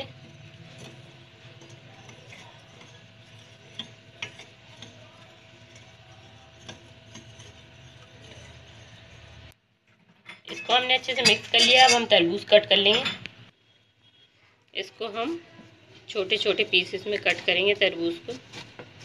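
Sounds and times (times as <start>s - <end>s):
spoon scraping glass bowl: 0.0s - 9.5s, 10.5s - 12.2s
low background hum: 0.0s - 19.0s.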